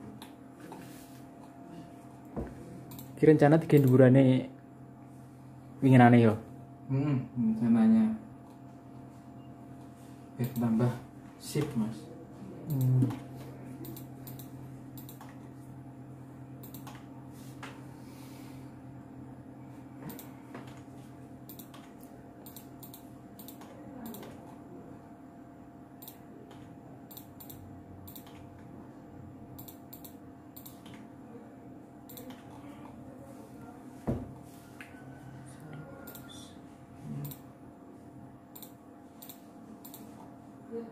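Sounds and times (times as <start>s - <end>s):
steady low hum: 0.0s - 40.9s
computer keyboard clicks: 13.8s - 15.4s, 16.6s - 17.0s, 20.1s - 20.3s, 21.5s - 24.4s, 26.0s - 28.5s, 29.6s - 31.0s, 32.1s - 32.6s, 37.2s - 37.4s, 38.6s - 40.1s.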